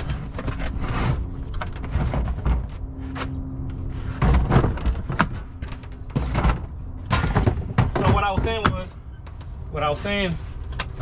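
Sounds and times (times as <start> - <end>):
plastic tool cases knocking: 4.1 - 9.0.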